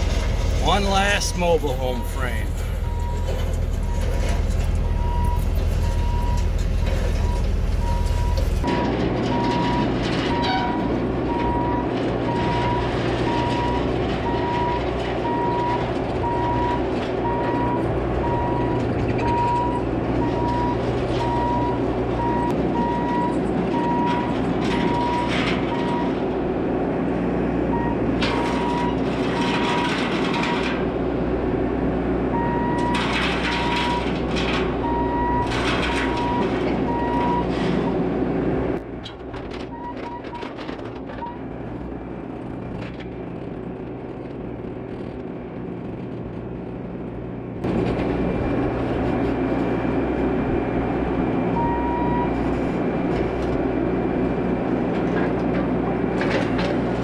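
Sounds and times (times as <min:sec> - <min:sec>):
diesel engine running: 0:00.0 - 0:57.0
backup alarm beeping: 0:00.7 - 0:04.2.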